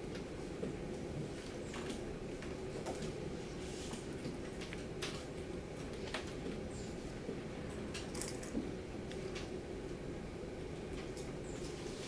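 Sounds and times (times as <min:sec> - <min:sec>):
low room hum: 0:00.0 - 0:12.0.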